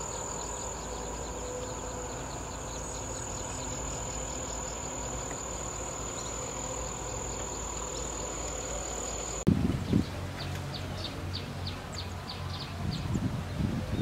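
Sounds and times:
insects droning: 0:00.0 - 0:09.5.

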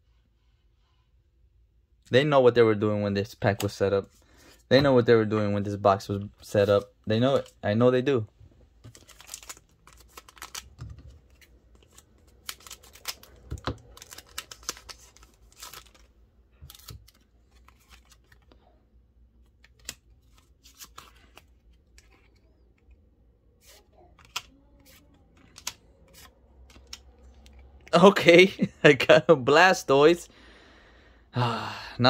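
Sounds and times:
cards clicking and rustling: 0:06.1 - 0:07.6, 0:08.8 - 0:18.6, 0:19.4 - 0:28.1
foil wrapper crinkling: 0:08.8 - 0:18.5.

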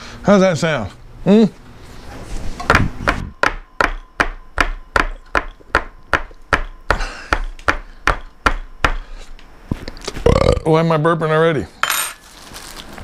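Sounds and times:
fists knocking on a tabletop: 0:02.7 - 0:09.0.

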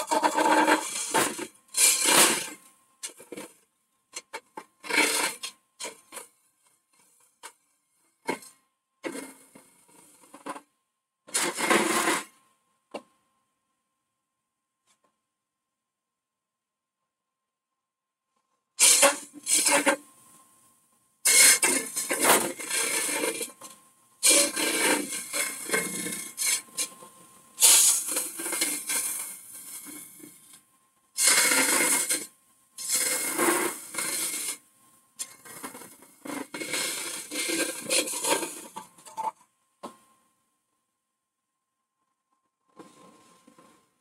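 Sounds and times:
lathe tool scraping wood: 0:00.0 - 0:02.6, 0:24.2 - 0:26.9, 0:27.6 - 0:30.0, 0:31.2 - 0:34.6, 0:35.2 - 0:39.3.

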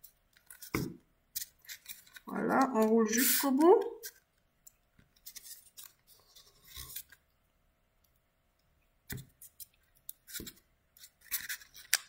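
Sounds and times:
paper rustling and rubbing: 0:05.2 - 0:07.2, 0:10.3 - 0:12.0.

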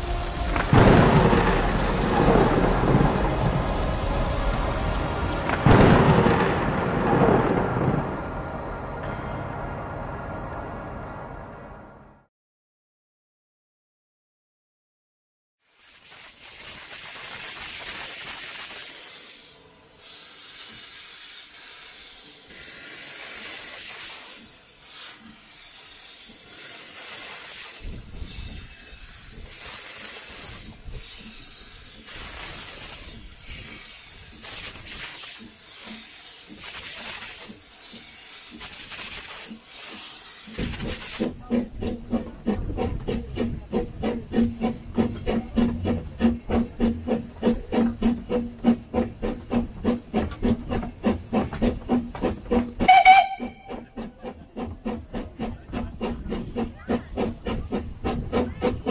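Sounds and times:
steam locomotive exhaust beats: 0:00.0 - 0:11.0, 0:16.0 - 0:58.9
steam hissing: 0:15.6 - 0:58.9.

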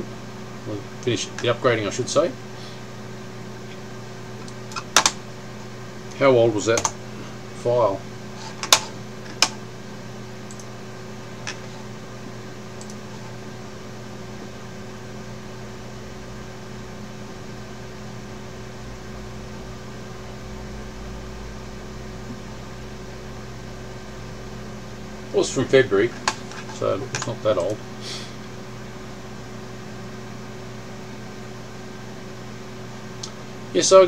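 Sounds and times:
computer fan hum: 0:00.0 - 0:34.0
sharp clicks: 0:10.5 - 0:10.7, 0:12.8 - 0:13.0.

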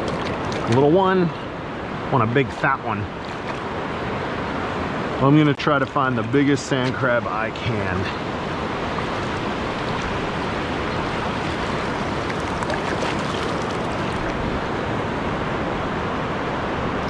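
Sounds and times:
surf washing over sand: 0:00.0 - 0:17.0.

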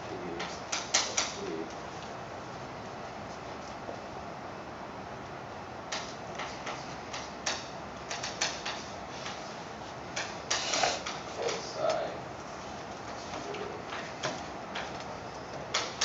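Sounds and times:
chalk tapping and scratching on chalkboard: 0:06.4 - 0:09.5, 0:10.2 - 0:11.6.

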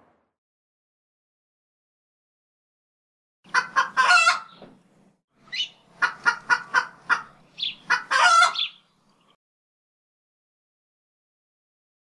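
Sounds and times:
rooster clucking: 0:03.5 - 0:04.6, 0:05.5 - 0:08.8.

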